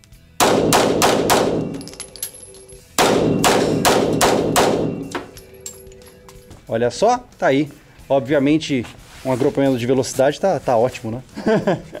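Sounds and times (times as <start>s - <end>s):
pistol shots echoing indoors: 0.4s - 5.7s.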